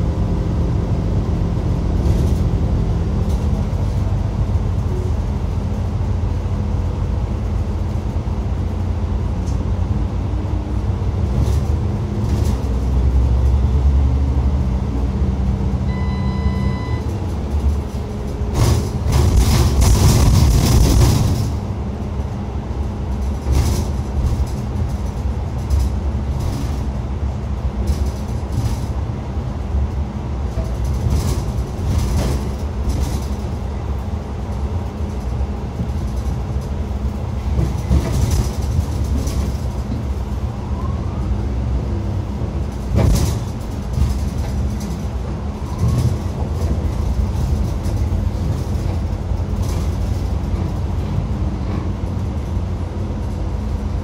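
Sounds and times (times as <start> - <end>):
bus cabin low rumble: 0.0 - 54.0
knocks and rattles: 17.1 - 21.7, 23.1 - 26.9, 30.5 - 33.6, 34.4 - 40.4, 42.6 - 52.0.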